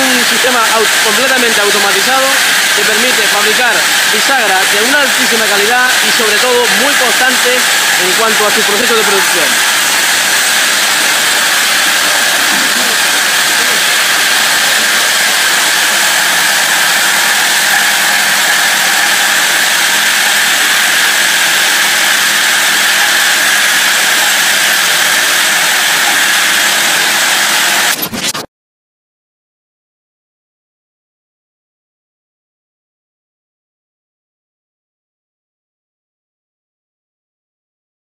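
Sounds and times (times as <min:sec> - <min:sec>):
assembly machine running: 0:00.0 - 0:28.5.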